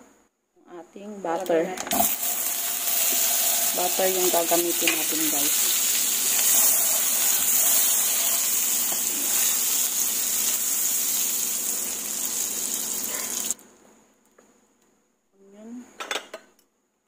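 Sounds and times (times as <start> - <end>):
butter sizzling in a pan: 2.0 - 13.6.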